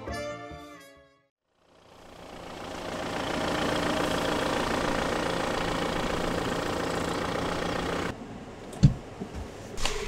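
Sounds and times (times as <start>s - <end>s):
car engine idling: 1.5s - 8.2s.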